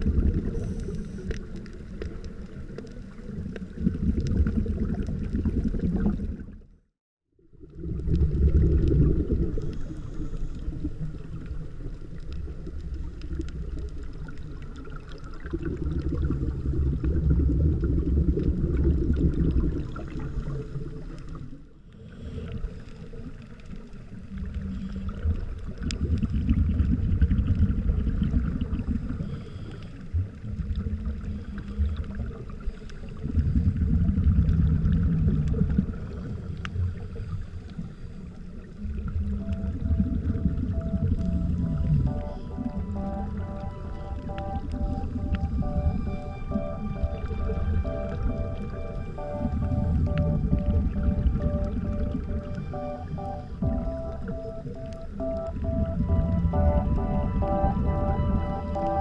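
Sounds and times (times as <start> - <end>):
underwater low rumble: 0.0 - 59.0
water gurgling: 0.0 - 59.0.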